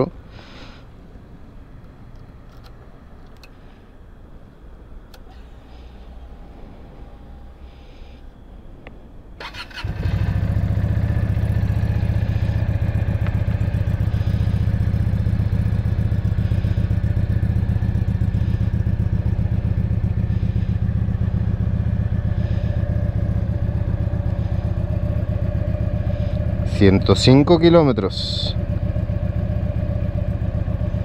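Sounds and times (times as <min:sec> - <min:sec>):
motorcycle engine idling: 0:09.4 - 0:31.0.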